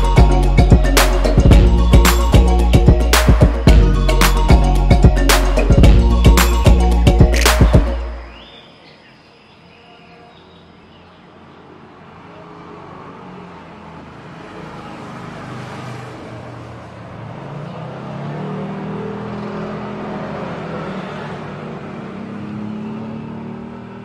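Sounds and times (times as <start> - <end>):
vehicle engine passing: 12.5 - 24.0.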